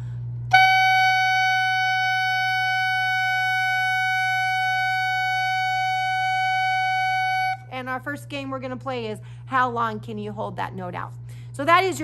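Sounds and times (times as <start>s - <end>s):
clarinet mouthpiece high note: 0.5s - 7.6s.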